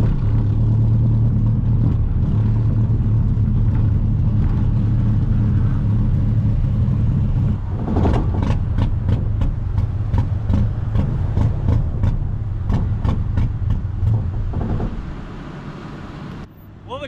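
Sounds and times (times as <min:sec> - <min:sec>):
car engine running: 0:00.0 - 0:16.5.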